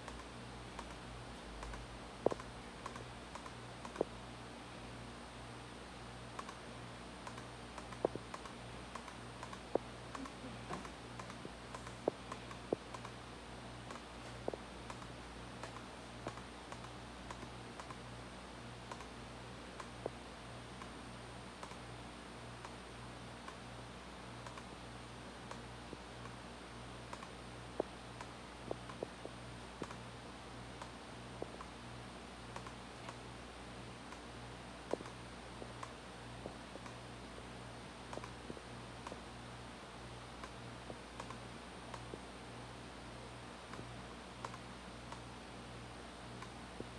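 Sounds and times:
low steady hum: 0.0s - 46.9s
laptop keys clicking: 1.6s - 4.1s, 6.4s - 6.6s, 7.2s - 13.1s, 14.9s - 18.0s.

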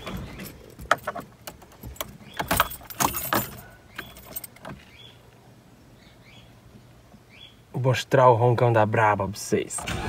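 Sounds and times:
keys jangling in ignition: 0.0s - 4.6s.

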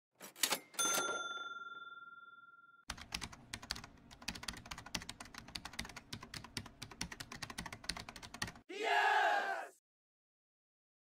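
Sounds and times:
ringing chime: 0.8s - 2.8s
keyboard typing clicks: 2.9s - 8.6s.

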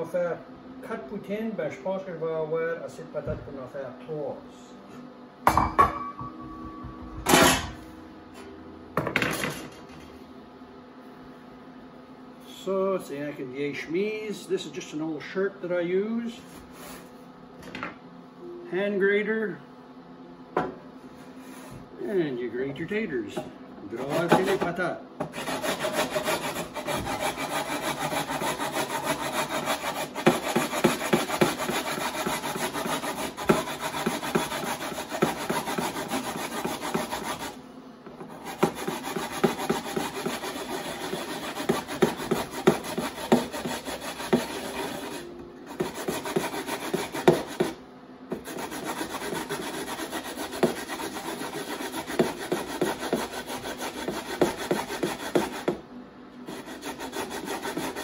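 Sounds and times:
potato grated on metal grater: 23.9s - 37.6s, 38.3s - 55.8s, 56.5s - 58.0s.

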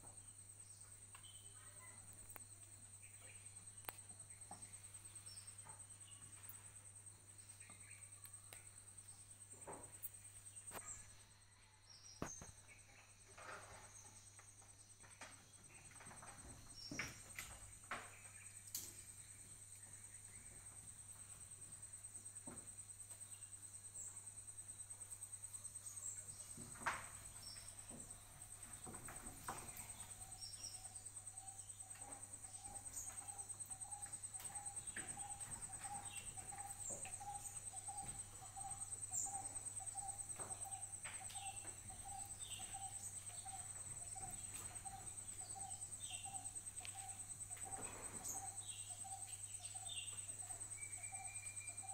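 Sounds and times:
high-pitched insect trill: 0.0s - 51.9s
low pulsing insect call: 0.0s - 51.9s
bird chirps: 29.5s - 51.9s.

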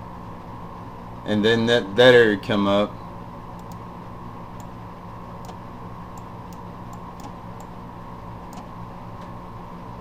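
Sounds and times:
low electrical hum: 0.0s - 10.0s
computer mouse clicks: 3.6s - 3.8s, 5.4s - 7.8s, 8.5s - 8.7s.

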